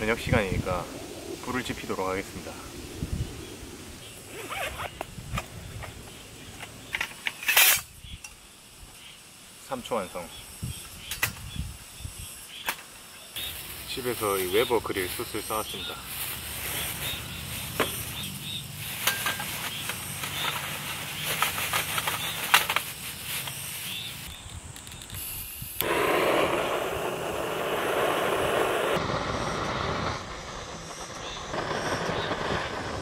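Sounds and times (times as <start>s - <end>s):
gas torch hissing: 13.4s - 33.0s
plastic bag rustling: 16.0s - 18.1s, 18.7s - 24.3s.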